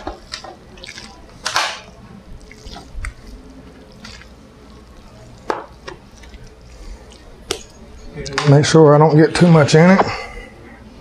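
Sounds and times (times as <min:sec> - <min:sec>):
soft wet plops and squishes: 0:00.0 - 0:07.8.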